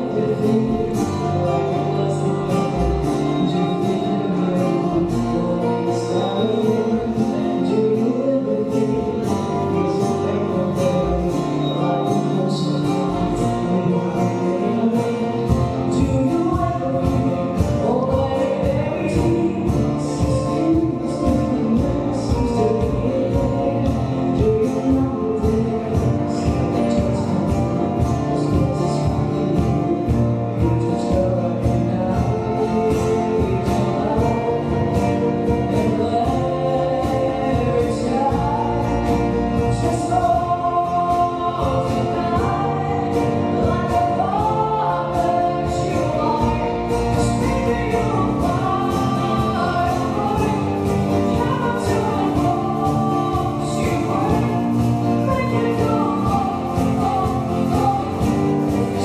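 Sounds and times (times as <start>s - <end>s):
acoustic guitar: 0.0s - 59.0s
double bass: 0.0s - 59.0s
woman singing: 0.0s - 59.0s
drum kit beat: 15.4s - 59.0s.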